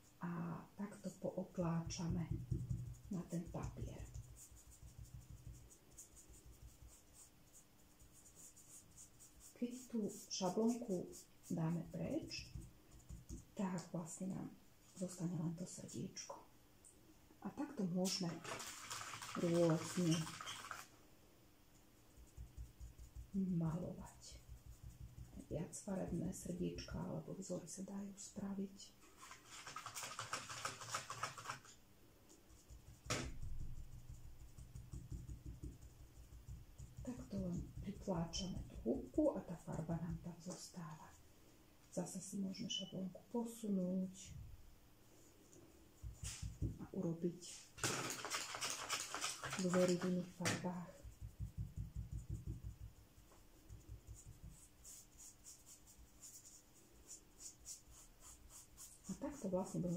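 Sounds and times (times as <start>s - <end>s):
sponge dabbing on paper: 0.9s - 14.2s, 14.8s - 16.2s, 17.8s - 20.9s, 22.0s - 27.4s, 29.0s - 41.2s, 45.9s - 59.9s
sponge rubbing in paint pan: 1.9s - 13.9s, 18.0s - 20.9s, 22.2s - 26.6s, 29.0s - 31.7s, 32.5s - 40.8s, 46.0s - 59.9s.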